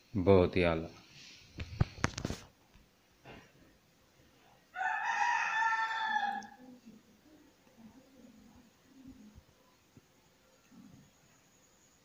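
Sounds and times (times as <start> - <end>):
rooster crowing: 4.7 - 6.6.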